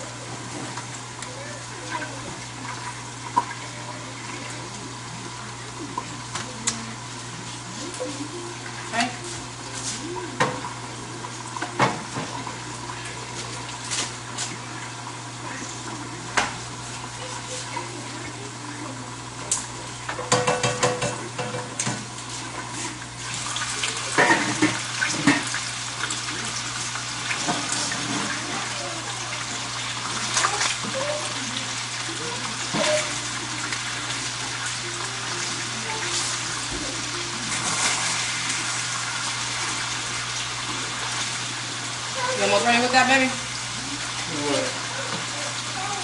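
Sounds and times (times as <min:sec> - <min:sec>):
meatballs sizzling in oil: 0:21.2 - 0:46.0.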